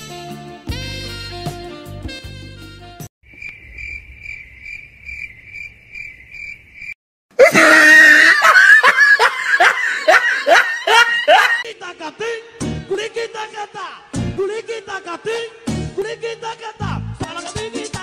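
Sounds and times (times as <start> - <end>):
jazz music: 0.0 - 3.1
cricket chirping: 3.3 - 7.0
loud laughter: 7.4 - 11.7.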